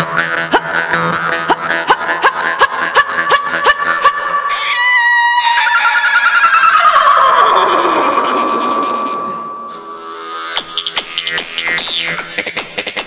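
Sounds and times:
jaw harp twanging: 7.3 - 13.0.

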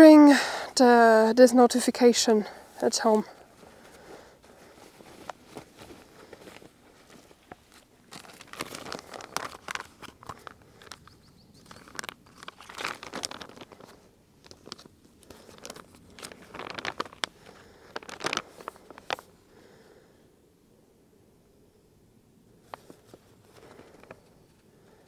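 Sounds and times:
paper crinkling and rustling: 3.6 - 19.3, 22.6 - 24.7.

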